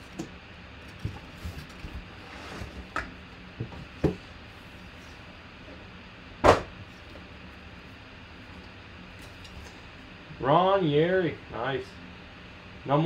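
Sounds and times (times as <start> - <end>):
plastic and cardboard rustling: 0.8 - 3.0
loud knock: 6.4 - 6.7.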